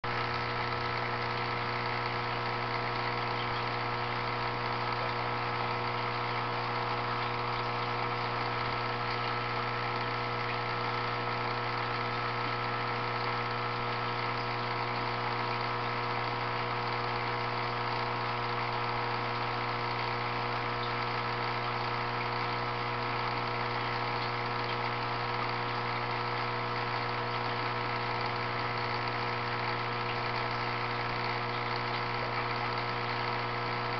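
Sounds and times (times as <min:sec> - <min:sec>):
aquarium pump humming: 0:00.0 - 0:33.9.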